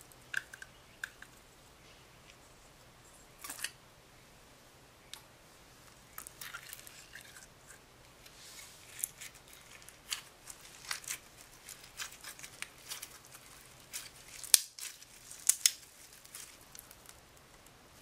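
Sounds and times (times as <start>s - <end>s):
crunchy slime crackling: 8.8s - 17.7s.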